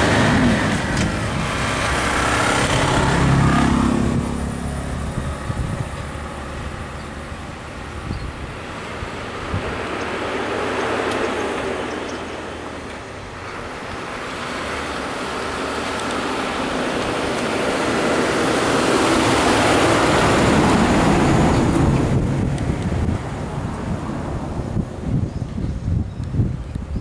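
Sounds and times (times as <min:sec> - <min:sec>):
bus diesel engine passing: 0:00.0 - 0:25.5.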